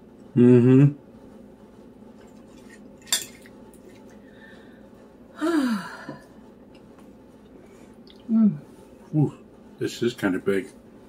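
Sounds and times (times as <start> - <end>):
person sighing: 5.4 - 6.2.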